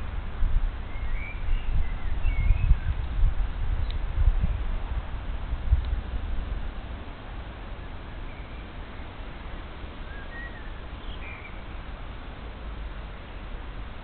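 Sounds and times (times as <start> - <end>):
steady outdoor hiss: 0.0 - 14.0
faint bird chirps: 0.9 - 3.0, 8.2 - 9.1, 10.0 - 11.8.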